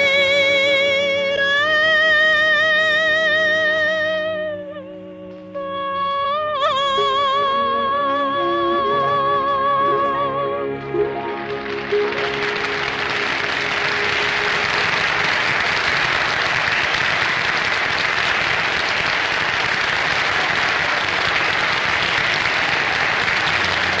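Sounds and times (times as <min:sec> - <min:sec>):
song accompaniment held note: 0:00.0 - 0:16.9
audience applause: 0:10.7 - 0:24.0.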